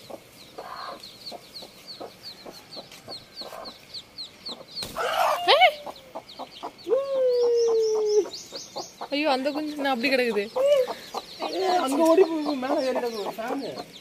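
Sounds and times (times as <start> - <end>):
chicks peeping: 0.0 - 14.0
hen squawking: 5.0 - 8.4
long falling cry: 6.9 - 8.2.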